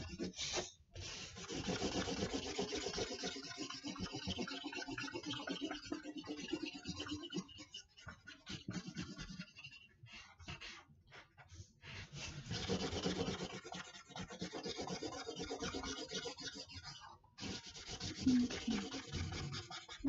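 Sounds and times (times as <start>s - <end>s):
marker scribbling on paper: 0.0s - 3.6s, 12.3s - 16.8s, 17.4s - 20.0s.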